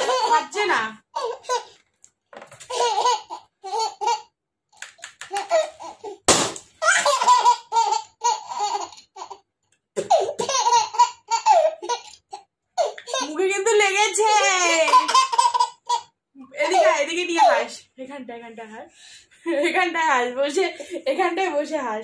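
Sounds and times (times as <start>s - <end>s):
child laughing: 0.0s - 0.5s
balloon bursting: 6.3s - 7.0s.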